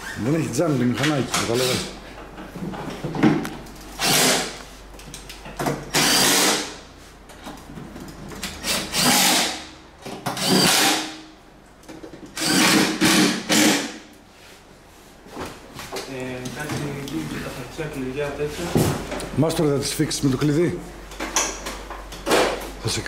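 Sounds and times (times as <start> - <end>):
cordless drill running in bursts: 4.0 - 4.5, 5.9 - 6.7, 8.6 - 9.6, 10.4 - 11.0, 12.4 - 13.9.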